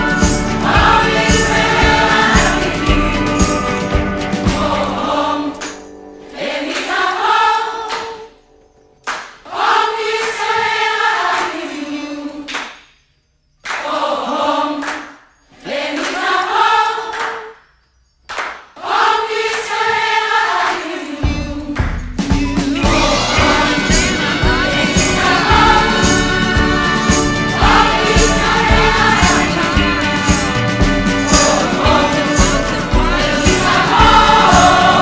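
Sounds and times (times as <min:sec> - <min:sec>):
choir singing: 0:00.0 - 0:08.4, 0:09.4 - 0:12.7, 0:13.8 - 0:17.6, 0:18.8 - 0:35.0.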